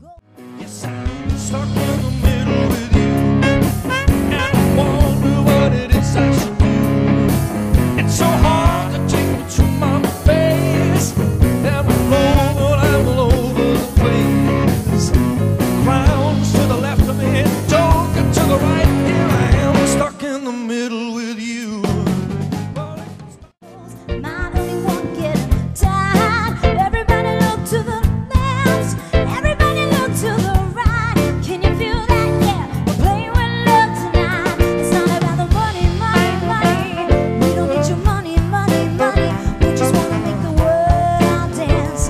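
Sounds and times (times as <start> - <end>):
man singing: 0.0 - 7.0, 7.8 - 23.5, 33.0 - 42.0
bass: 0.0 - 20.2, 21.7 - 42.0
electric guitar: 0.3 - 20.2, 21.9 - 42.0
drum kit: 0.4 - 20.3, 21.4 - 42.0.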